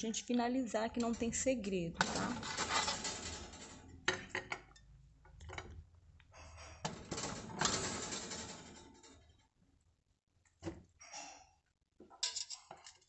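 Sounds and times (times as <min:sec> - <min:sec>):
metal fork scraping a metal pan: 0:02.0 - 0:03.4.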